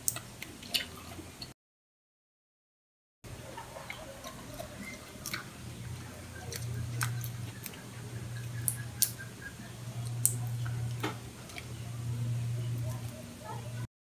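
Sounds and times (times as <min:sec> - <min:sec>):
steady low hum: 0:03.3 - 0:13.9.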